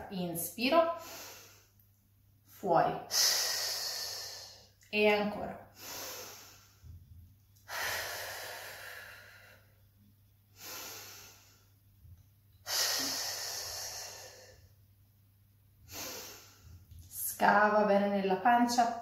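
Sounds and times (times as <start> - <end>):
woman breathing deeply: 1.0 - 1.8, 3.1 - 4.8, 5.7 - 7.0, 7.6 - 9.8, 10.5 - 11.8, 12.6 - 14.8, 15.8 - 17.0.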